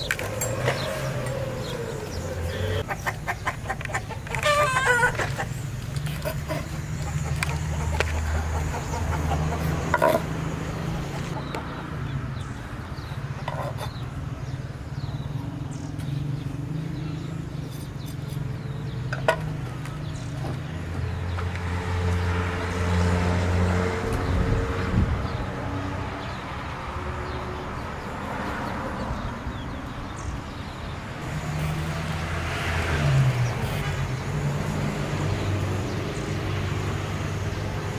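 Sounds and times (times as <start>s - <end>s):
low motor hum: 0.0s - 2.8s.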